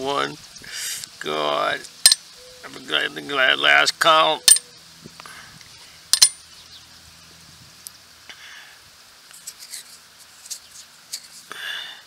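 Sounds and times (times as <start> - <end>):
coins clinking on metal blade: 6.2 - 6.4.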